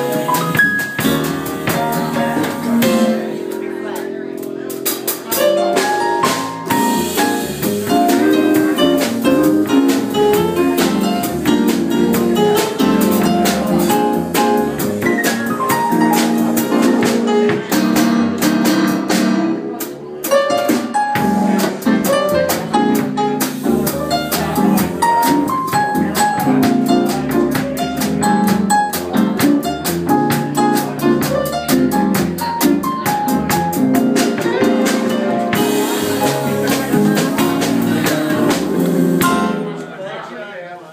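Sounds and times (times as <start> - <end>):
drums keeping a steady beat: 0.0 - 39.8
upright double bass: 0.0 - 39.8
electric guitar: 31.7 - 39.7.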